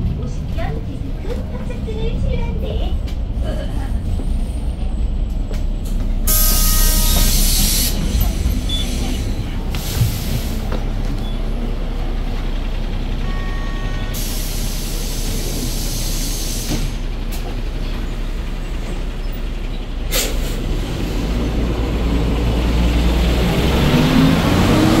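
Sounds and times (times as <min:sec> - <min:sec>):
bus engine running: 0:00.0 - 0:25.0
compressed air hissing: 0:06.3 - 0:08.1, 0:14.2 - 0:17.0.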